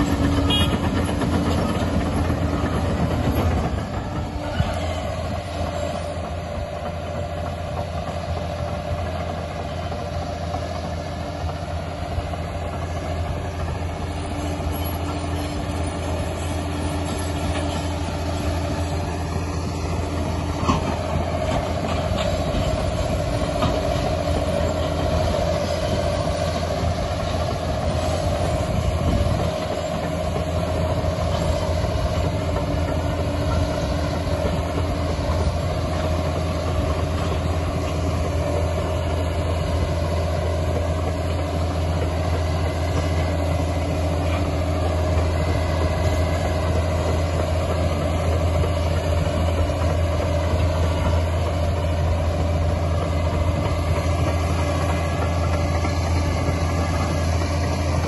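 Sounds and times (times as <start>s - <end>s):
diesel engine under load: 0.0s - 58.0s
steady machine whine: 0.0s - 58.0s
steel tracks clattering: 0.0s - 58.0s.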